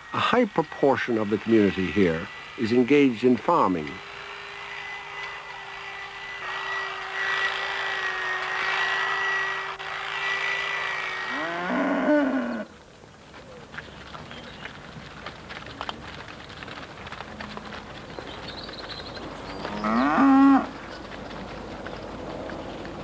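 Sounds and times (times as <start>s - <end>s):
milking machine humming: 0.1s - 11.6s
cow mooing: 10.2s - 12.7s, 19.6s - 20.8s.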